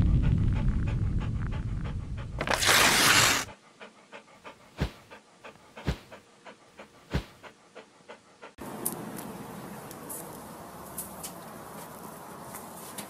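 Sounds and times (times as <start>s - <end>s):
low rumble: 0.0s - 2.5s
dog panting: 0.2s - 8.6s.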